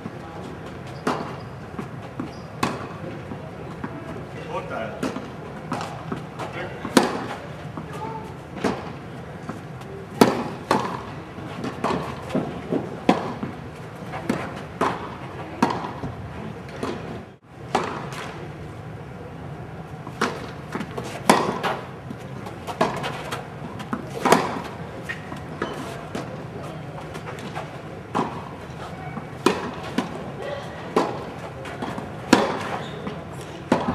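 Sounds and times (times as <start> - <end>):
tennis balls bouncing on court: 0.0 - 18.4, 20.0 - 33.9
rackets striking tennis balls: 0.4 - 18.5, 20.0 - 33.9.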